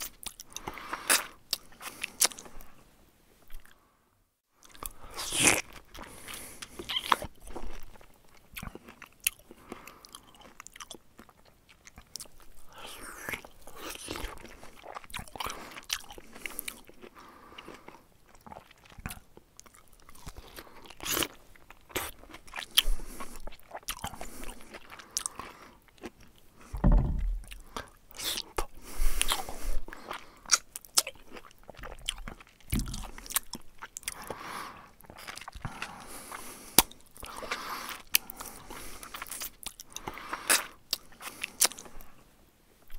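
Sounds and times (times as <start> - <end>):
mouth chewing and crunching food: 0.0 - 2.8, 3.5 - 3.8, 4.6 - 42.2
deep thuds: 26.8 - 27.6.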